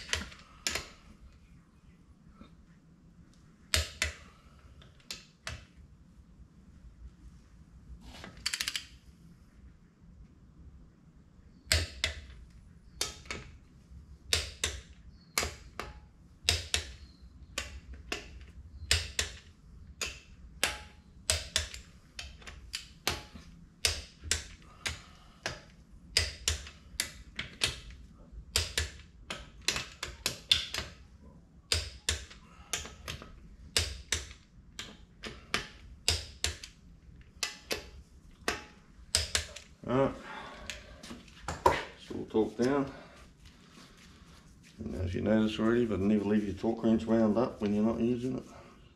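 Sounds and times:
ratcheting wrench clicking: 8.4 - 8.9, 17.6 - 31.0, 31.7 - 39.7.

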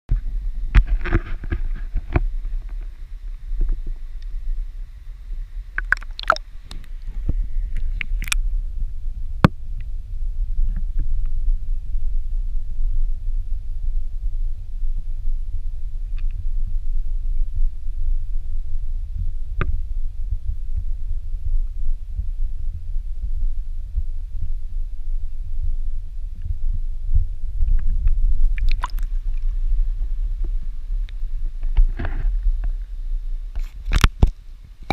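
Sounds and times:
low underwater rumble: 0.1 - 34.9
water splashing: 5.8 - 7.2, 28.6 - 29.4.

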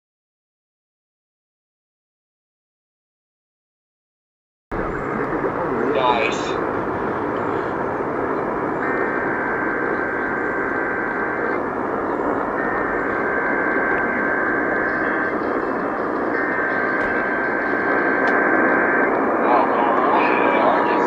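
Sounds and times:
radio static hiss: 4.7 - 21.0
digital data tone warble: 4.8 - 21.0.

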